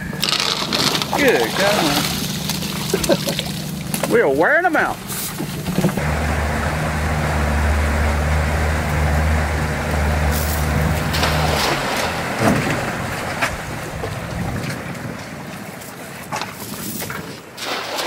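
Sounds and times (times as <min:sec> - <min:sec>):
outboard motor running: 0:00.0 - 0:17.4.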